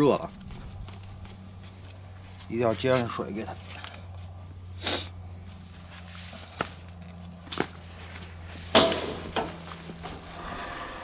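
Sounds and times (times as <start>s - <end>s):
steady low hum: 0.0s - 11.0s
hose knocking and rustling: 7.5s - 10.2s.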